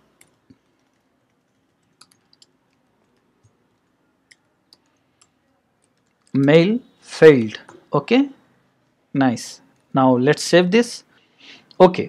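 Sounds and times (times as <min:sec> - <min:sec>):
soft keyboard typing: 0:00.0 - 0:06.6.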